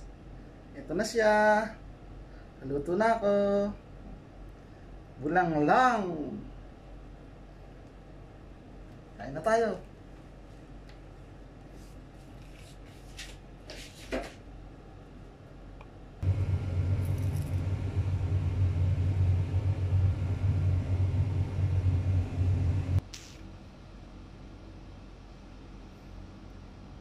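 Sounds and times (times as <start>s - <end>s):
loud steady low rumble: 16.2s - 23.0s.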